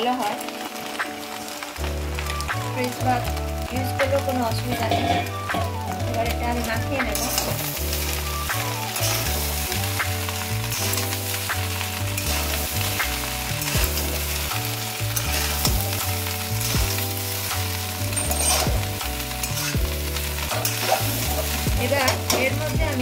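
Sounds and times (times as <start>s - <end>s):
rice sizzling in a pan: 0.0s - 23.0s
background music with bass: 1.8s - 23.0s
metal spatula scraping pan: 4.7s - 5.7s, 18.1s - 19.8s.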